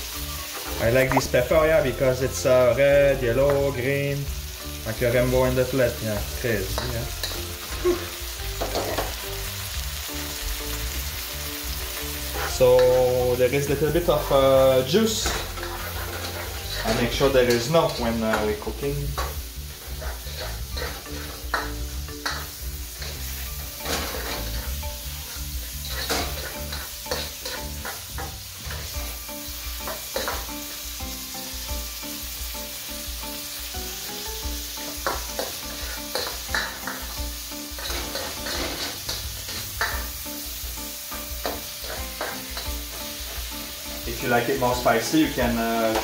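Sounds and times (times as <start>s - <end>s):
food sizzling in a wok: 0.0s - 46.0s
spatula scraping a pan: 11.9s - 30.7s, 34.6s - 46.0s.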